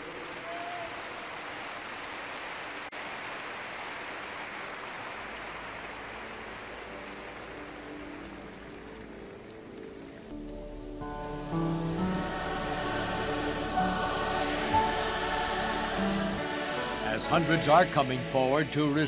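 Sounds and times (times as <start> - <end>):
arena crowd noise: 0.0 - 8.2, 11.9 - 19.0
faint sustained music: 4.1 - 19.0.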